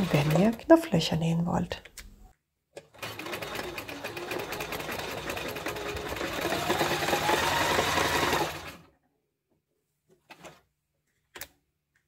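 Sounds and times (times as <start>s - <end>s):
sewing machine stitching: 0.0s - 0.8s, 2.8s - 8.9s.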